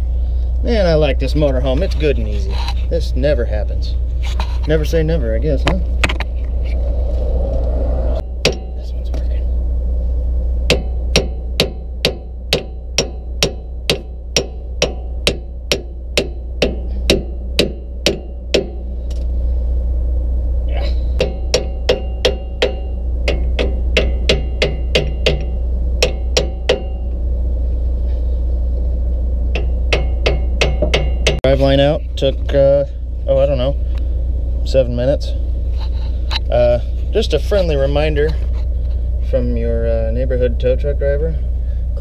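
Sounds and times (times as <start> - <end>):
hammer blows on metal: 10.7 - 19.0, 20.8 - 27.2, 29.5 - 31.4.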